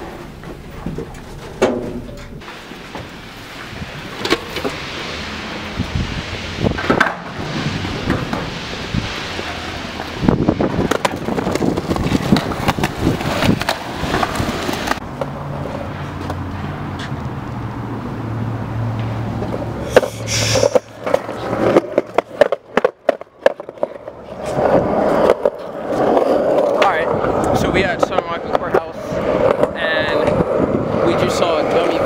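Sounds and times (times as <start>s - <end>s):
skateboard wheels rolling and clacking: 0.0s - 17.3s, 19.0s - 32.0s
traffic noise: 0.0s - 32.0s
footsteps on concrete: 15.6s - 17.3s.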